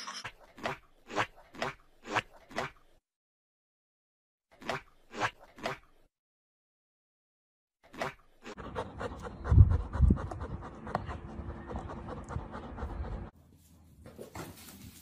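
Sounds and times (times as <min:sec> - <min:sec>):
dog panting: 0:08.5 - 0:13.3.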